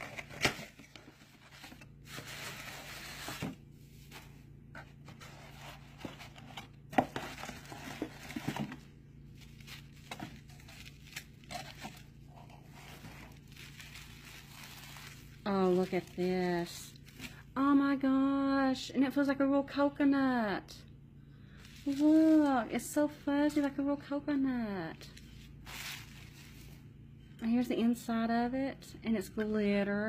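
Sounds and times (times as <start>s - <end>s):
shredded paper rustling: 0.0s - 17.4s, 21.6s - 22.6s, 25.2s - 26.9s.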